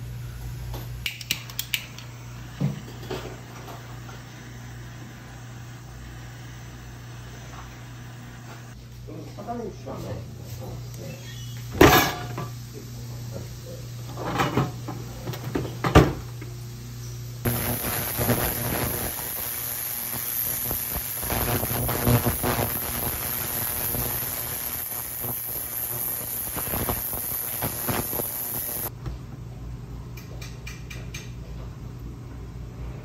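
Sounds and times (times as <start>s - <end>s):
low electrical hum: 0.0s - 33.0s
ultrasonic cleaner hissing: 1.9s - 8.8s, 17.4s - 28.9s.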